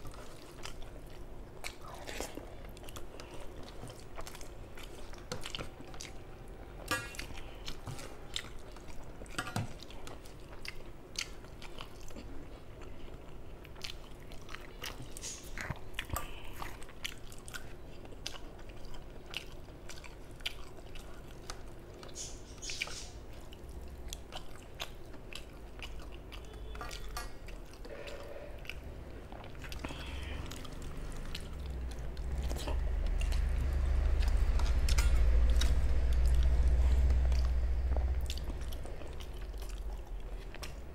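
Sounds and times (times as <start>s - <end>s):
person chewing: 0.0s - 40.9s
low rumble: 30.2s - 40.5s.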